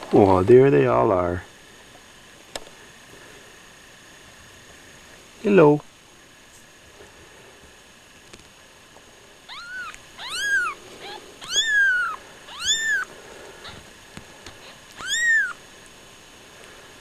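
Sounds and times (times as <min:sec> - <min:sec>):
kittens mewing: 0:09.5 - 0:13.9, 0:14.6 - 0:15.6.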